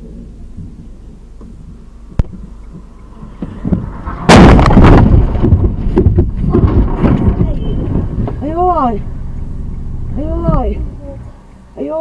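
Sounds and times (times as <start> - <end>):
metal crunching and rattling: 3.3 - 11.0
car crash impact: 3.4 - 8.4.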